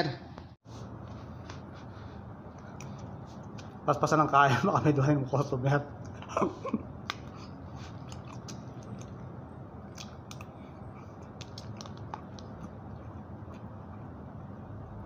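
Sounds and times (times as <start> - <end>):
low background hum: 0.0 - 15.0
man chewing: 2.4 - 3.8, 7.0 - 14.2.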